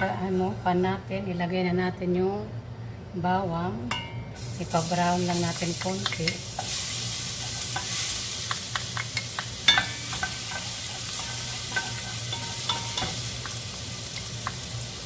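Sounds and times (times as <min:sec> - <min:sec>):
spoon and bowl tapping pot: 0:03.9 - 0:04.2, 0:06.0 - 0:06.4, 0:07.8 - 0:13.6
garlic sizzling in oil: 0:04.4 - 0:15.0.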